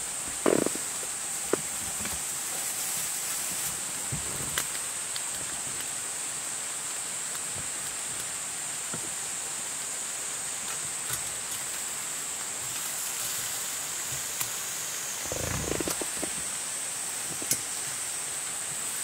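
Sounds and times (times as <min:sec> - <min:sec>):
faint crackles: 0:00.0 - 0:06.2, 0:10.6 - 0:16.6, 0:17.2 - 0:18.0
meat sizzling on charcoal grill: 0:00.0 - 0:19.0.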